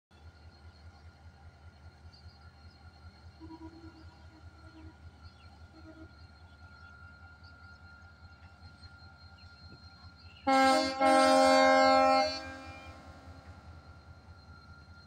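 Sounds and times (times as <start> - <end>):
diesel locomotive engine hum: 0.1 - 15.0
train horn chord: 10.4 - 13.6.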